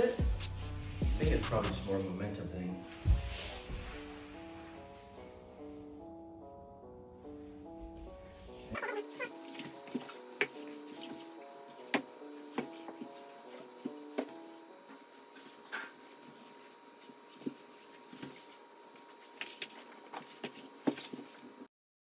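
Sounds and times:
soft background music: 0.0s - 21.7s
body scuffing on hard floor: 2.9s - 5.3s, 7.7s - 21.6s.

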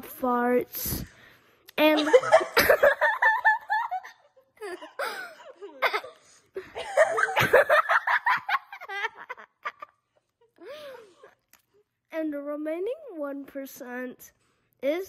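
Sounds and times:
person giggling: 1.9s - 10.8s.

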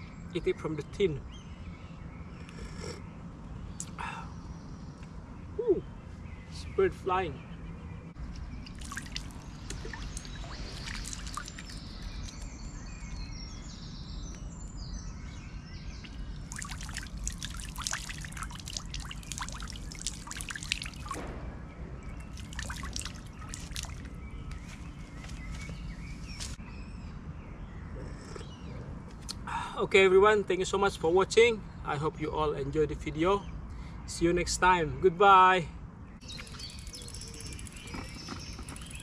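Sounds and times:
water pouring into pond: 8.6s - 12.4s, 16.1s - 21.3s, 22.1s - 24.2s, 36.3s - 38.0s.

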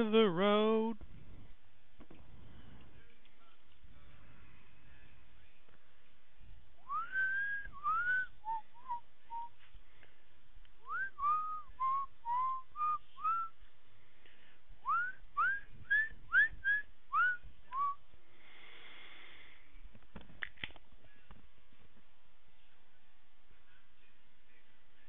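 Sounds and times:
person whistling a tune: 6.9s - 9.5s, 10.9s - 13.5s, 14.9s - 18.0s.

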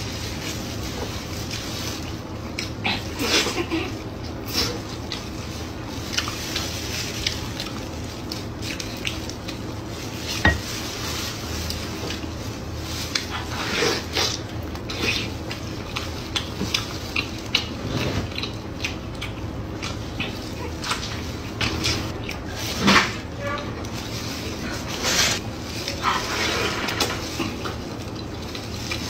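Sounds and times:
wet chewing and lip smacking: 6.1s - 9.8s, 14.2s - 21.2s.

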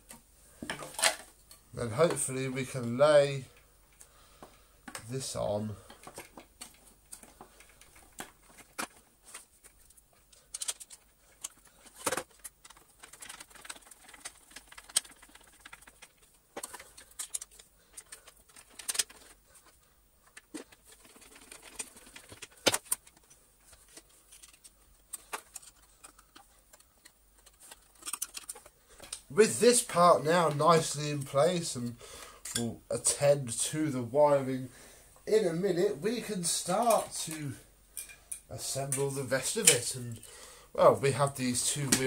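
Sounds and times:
plastic parts clicking and tapping: 3.6s - 5.1s, 5.8s - 29.3s.

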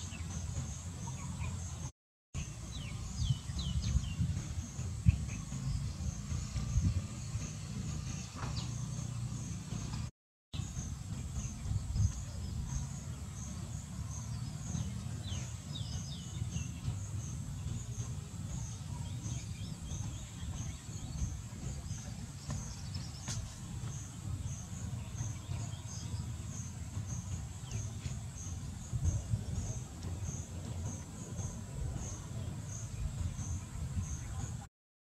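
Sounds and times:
low rumble: 0.0s - 34.7s.

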